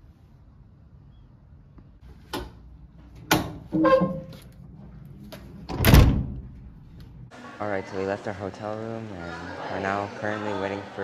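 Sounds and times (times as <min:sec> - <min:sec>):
door squeak: 0:03.7 - 0:04.4
door clunk: 0:05.7 - 0:06.4.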